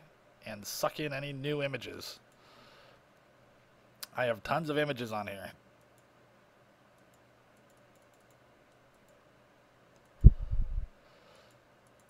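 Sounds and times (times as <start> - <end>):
computer mouse clicks: 7.0 - 9.2, 9.9 - 10.4, 11.4 - 12.0
dull low thump with rumble: 10.2 - 10.9.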